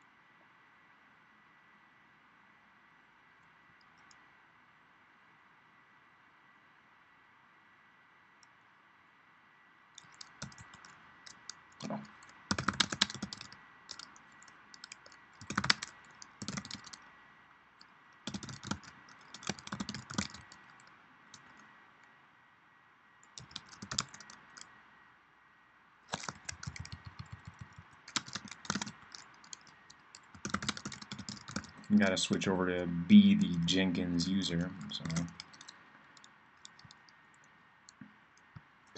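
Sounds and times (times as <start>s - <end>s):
typing on a computer keyboard: 10.0s - 17.1s, 18.2s - 21.6s, 23.3s - 24.7s, 26.1s - 32.1s, 34.7s - 38.0s.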